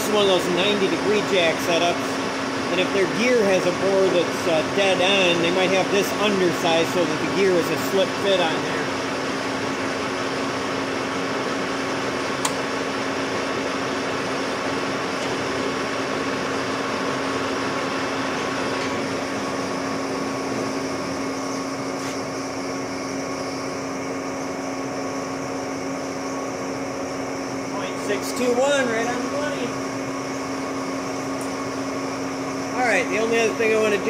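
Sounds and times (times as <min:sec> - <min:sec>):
metal lathe humming and hissing: 0:00.0 - 0:34.0
sharp click: 0:12.4 - 0:12.6.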